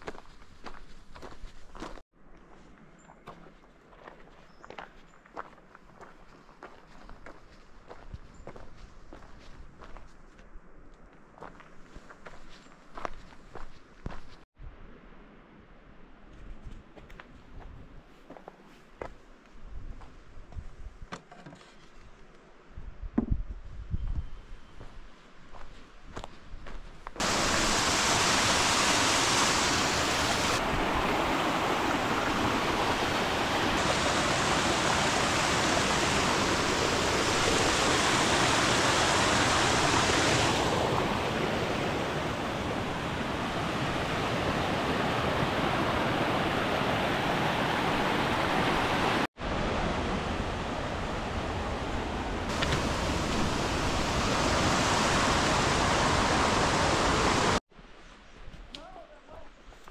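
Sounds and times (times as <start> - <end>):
creek rushing over rocks: 27.2 - 57.6.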